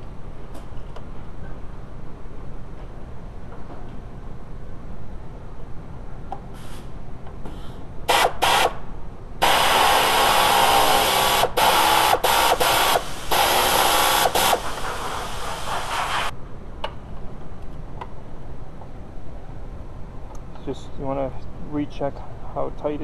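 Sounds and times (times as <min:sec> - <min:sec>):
pneumatic air gun whirring: 0:06.6 - 0:08.8, 0:09.4 - 0:16.3.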